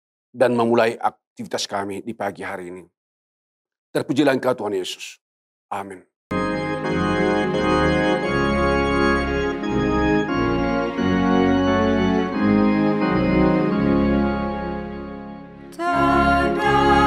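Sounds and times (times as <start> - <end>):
organ-voiced keyboard chords: 5.7 - 17.0.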